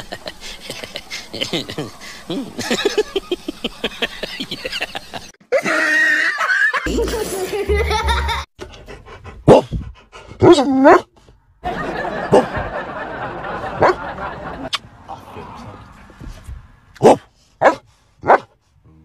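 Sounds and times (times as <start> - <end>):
child laughing: 4.2 - 8.5.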